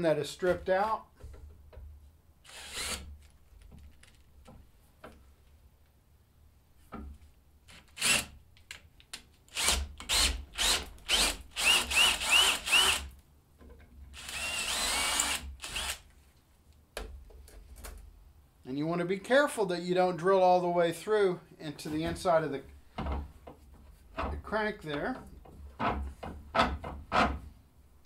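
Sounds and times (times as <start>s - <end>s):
cordless drill whining: 2.5s - 3.1s, 8.0s - 8.3s, 9.5s - 13.1s, 14.2s - 16.0s.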